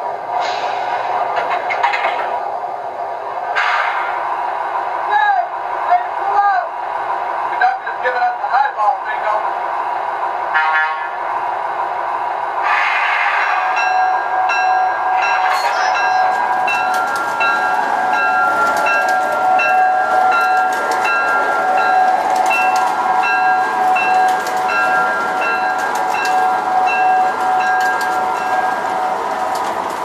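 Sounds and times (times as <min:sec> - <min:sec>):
toy train wheels rushing: 0:15.5 - 0:28.7.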